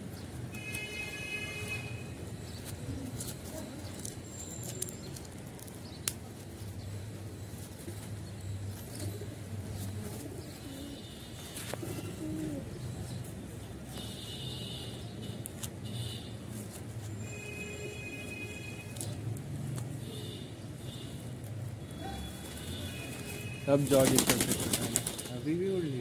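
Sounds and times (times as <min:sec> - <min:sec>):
pigeons cooing: 0:11.8 - 0:13.0.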